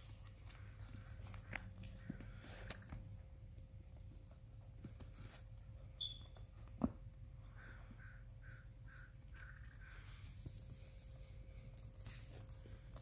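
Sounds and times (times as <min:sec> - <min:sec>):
goat hooves pattering: 0:00.0 - 0:07.8.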